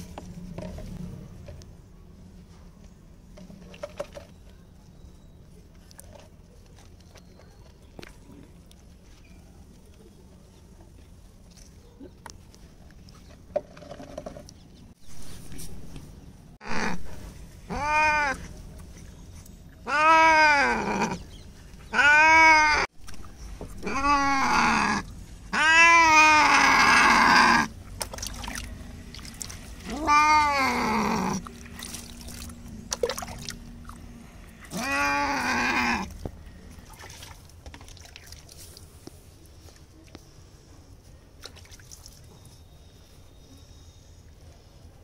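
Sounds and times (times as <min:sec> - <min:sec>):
cat yowling: 0:17.7 - 0:18.5, 0:19.8 - 0:21.2, 0:21.9 - 0:22.9, 0:23.8 - 0:27.7, 0:29.8 - 0:31.4, 0:34.7 - 0:36.1.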